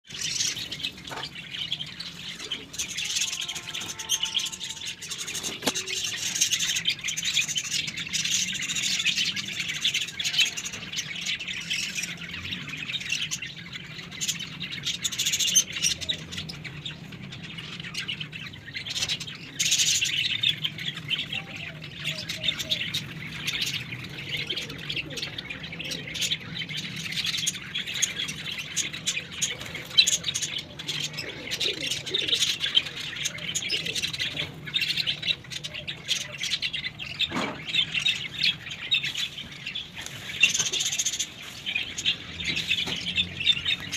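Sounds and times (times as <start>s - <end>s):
small birds chirping: 0.0s - 43.9s
bird squawks: 2.5s - 6.8s.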